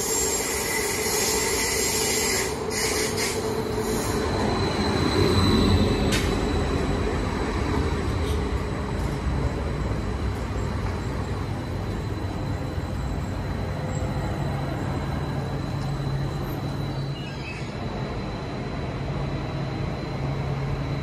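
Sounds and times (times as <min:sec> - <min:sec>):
train wheels rumbling: 0:00.0 - 0:21.0
thin high whine: 0:11.0 - 0:21.0.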